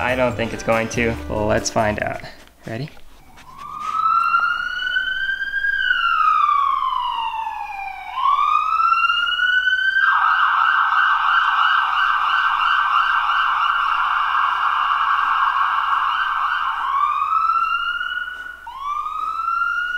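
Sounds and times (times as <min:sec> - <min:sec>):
ambulance siren through laptop speakers: 0:03.2 - 0:19.9.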